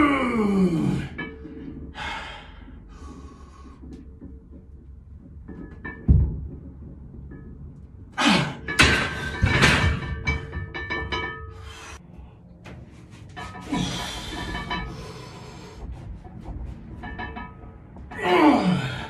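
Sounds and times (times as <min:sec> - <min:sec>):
man groaning and straining: 0:00.0 - 0:01.2, 0:08.2 - 0:08.7, 0:18.1 - 0:19.0
hard breathing: 0:01.0 - 0:04.1, 0:13.6 - 0:16.3.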